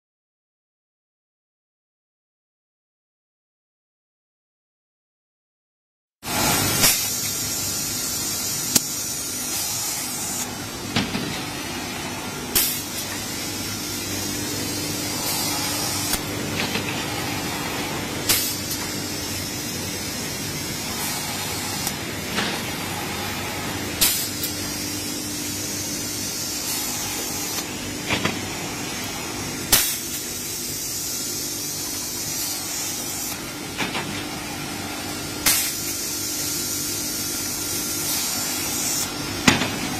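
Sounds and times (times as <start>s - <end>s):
sanding machine hissing and humming: 11.5s - 28.0s, 30.4s - 33.4s.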